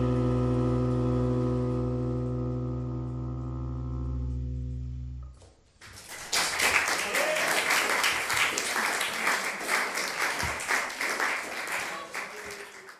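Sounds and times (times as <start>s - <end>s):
bowed double bass low note: 0.0s - 5.5s
audience applause: 5.8s - 12.9s.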